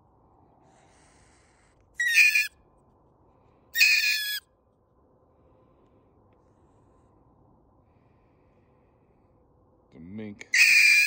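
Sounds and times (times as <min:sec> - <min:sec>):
mink high-pitched calls: 0:02.0 - 0:02.5, 0:03.8 - 0:04.4, 0:10.5 - 0:11.0.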